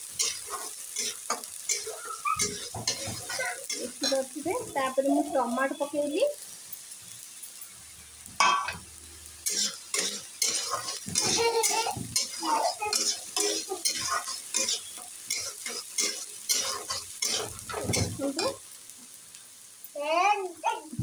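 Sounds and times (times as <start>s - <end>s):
steel spatula scraping a pan: 0.0s - 4.4s, 9.4s - 18.6s
sauce sizzling in oil: 0.0s - 21.0s.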